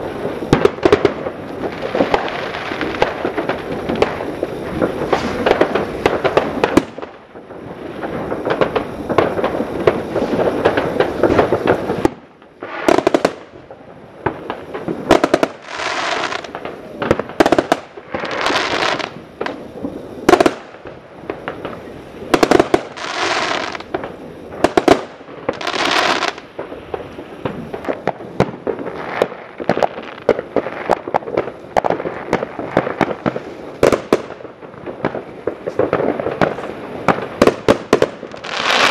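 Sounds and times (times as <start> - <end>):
fireworks bangs and crackling: 0.0 - 38.9
fireworks hissing: 0.0 - 38.9.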